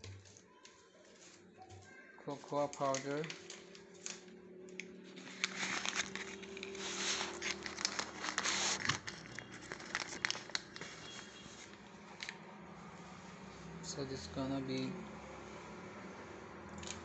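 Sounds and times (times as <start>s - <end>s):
plastic packet crinkling: 0.0s - 12.4s.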